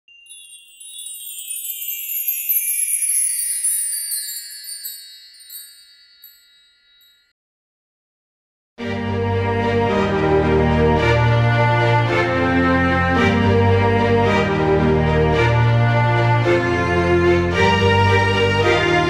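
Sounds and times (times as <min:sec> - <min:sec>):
bell-like chime gliding downward: 0:00.1 - 0:07.4.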